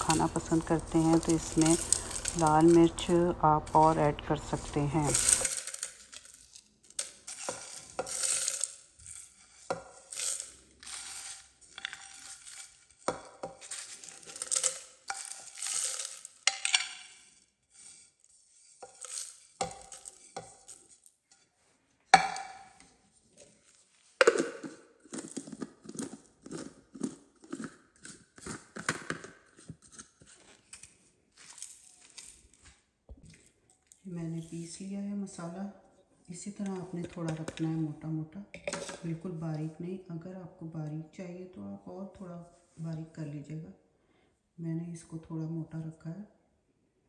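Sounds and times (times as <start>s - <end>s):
seeds rattling onto plastic: 0.0s - 17.9s, 18.8s - 21.1s.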